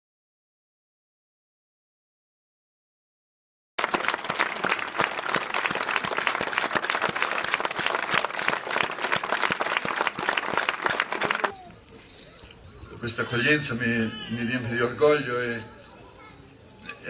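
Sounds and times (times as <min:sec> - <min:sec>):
crowd applauding: 0:03.8 - 0:11.7.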